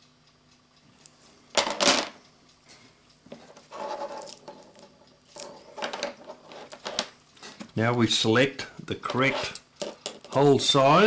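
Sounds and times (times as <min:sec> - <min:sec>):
metallic scraping rustle: 0:03.4 - 0:07.6, 0:09.1 - 0:10.3.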